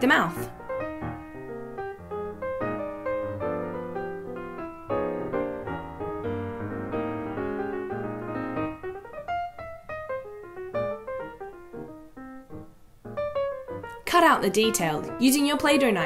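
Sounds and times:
piano-style keyboard tune: 0.0 - 16.0.

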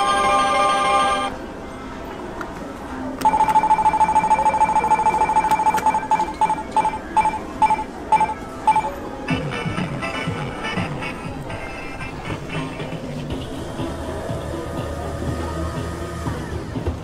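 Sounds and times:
vending machine chime: 0.0 - 1.3, 3.2 - 9.1
electronic beeping: 3.2 - 9.0.

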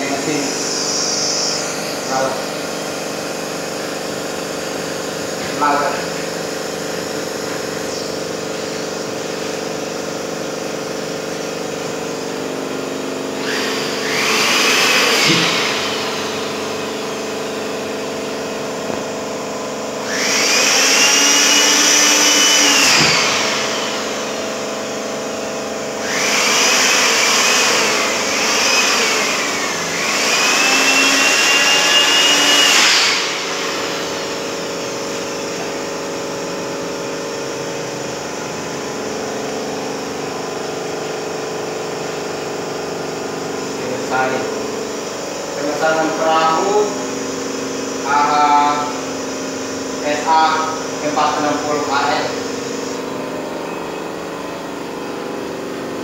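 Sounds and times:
electric air pump whining: 0.0 - 56.0
steady machine hum: 0.0 - 56.0.

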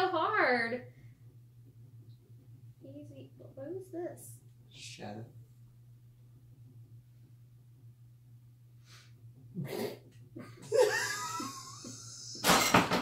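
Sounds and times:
faint low hum: 0.0 - 13.0
person laughing: 9.6 - 12.4.

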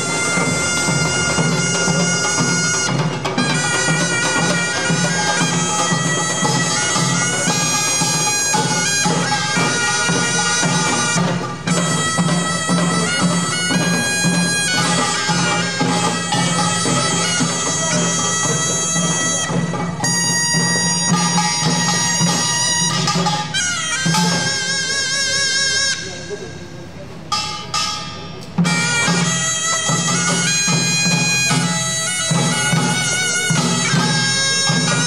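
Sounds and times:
drums beating steadily: 0.0 - 35.0
shawm playing piercing melody: 0.0 - 35.0.

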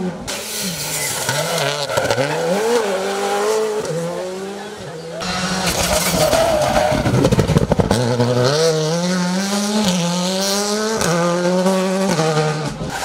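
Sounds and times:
rally car engine revving: 0.0 - 13.0
engine popping and crackling: 5.2 - 8.7.

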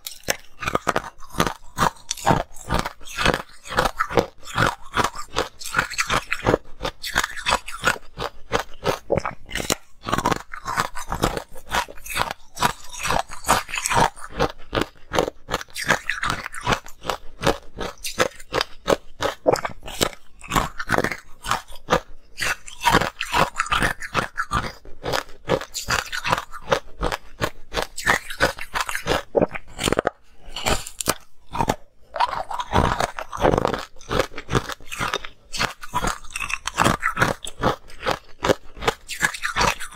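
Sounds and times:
person crunching ice: 0.0 - 39.9.

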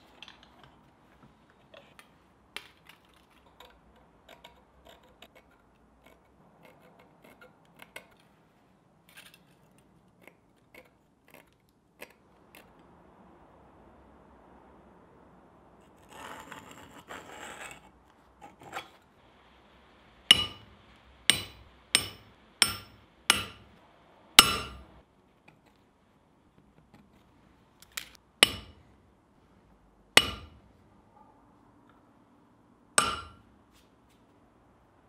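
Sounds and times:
hammer striking metal punch: 20.3 - 23.8, 24.4 - 25.0, 28.4 - 28.8, 30.2 - 30.6, 33.0 - 33.4.

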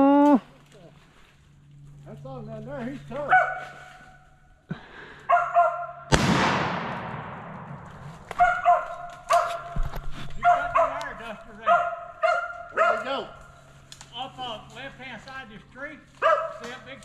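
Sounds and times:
dogs barking: 3.2 - 4.2, 5.2 - 6.1, 8.3 - 13.4, 16.2 - 16.8
shotgun shot echoing: 6.1 - 8.6.

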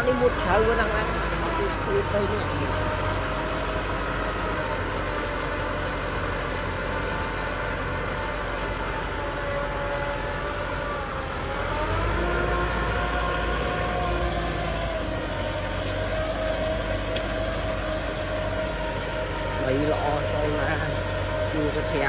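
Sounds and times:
tractor diesel engine under load: 0.0 - 22.0.

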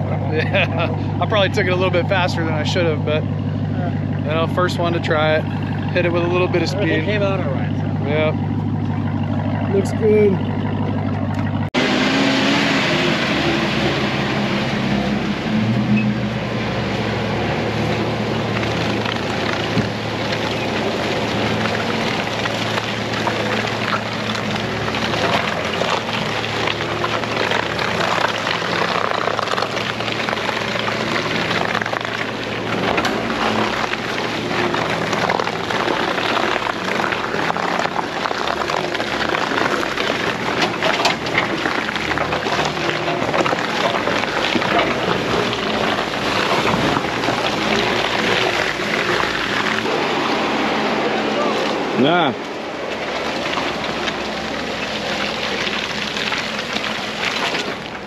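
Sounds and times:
engine drone: 0.0 - 58.0
knocks and rattles over bumps: 14.2 - 51.0.

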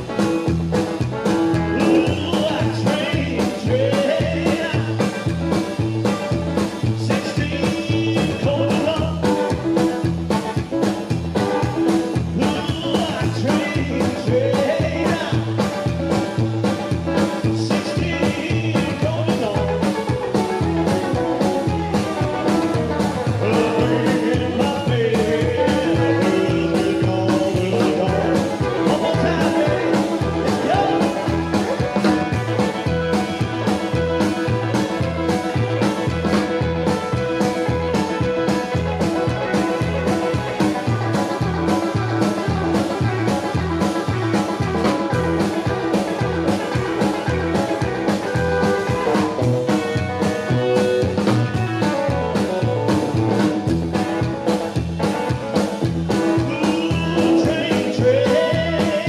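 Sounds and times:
rock and roll band playing: 0.0 - 59.0
slapped upright bass: 0.0 - 59.0
man singing: 1.5 - 9.8, 11.6 - 43.6, 56.3 - 59.0.

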